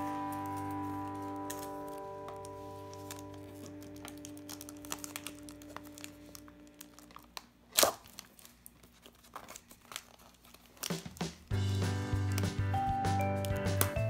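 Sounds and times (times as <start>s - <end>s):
soft background music chord: 0.0s - 7.0s, 11.5s - 14.0s
plastic wrapping crinkling and tearing: 0.1s - 11.5s, 13.2s - 14.0s.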